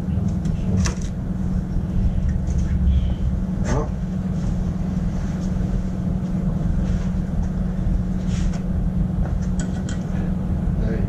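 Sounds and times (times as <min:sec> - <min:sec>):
workshop machine droning: 0:00.0 - 0:11.0
short falling tone: 0:01.9 - 0:04.0.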